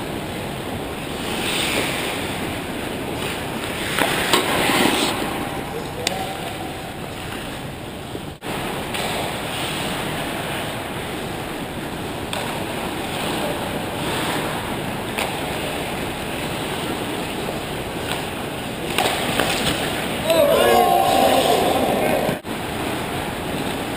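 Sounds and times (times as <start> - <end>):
skates scraping on ice: 1.1 - 2.5, 3.2 - 5.6.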